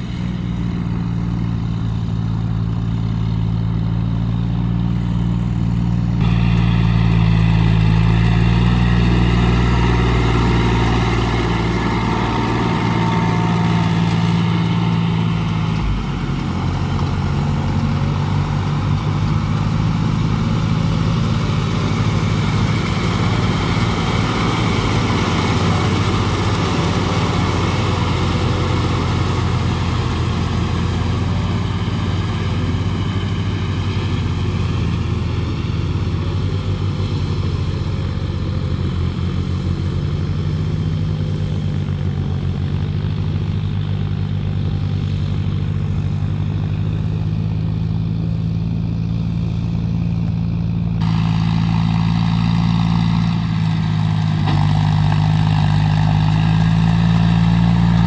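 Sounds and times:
another tractor engine running: 0.0s - 58.0s
tractor diesel engine under load: 0.0s - 58.0s.

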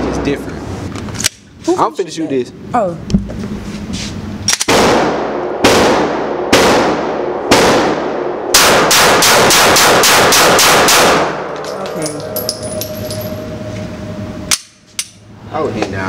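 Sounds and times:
pistol shots echoing indoors: 4.6s - 11.6s.

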